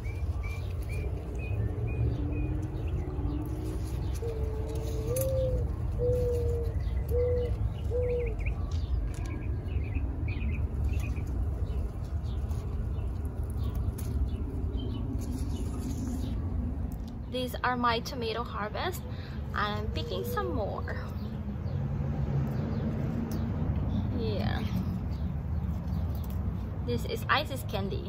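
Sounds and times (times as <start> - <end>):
rustling tomato plants: 0.0 - 9.7, 10.3 - 17.5
low rumble: 0.0 - 28.0
small birds chirping: 0.0 - 28.0
dove cooing: 3.6 - 9.2, 19.6 - 21.1.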